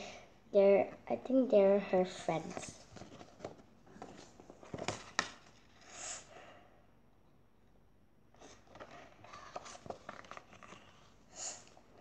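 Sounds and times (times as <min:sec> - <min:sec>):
faint page rustling: 0:02.0 - 0:06.0, 0:08.4 - 0:12.0.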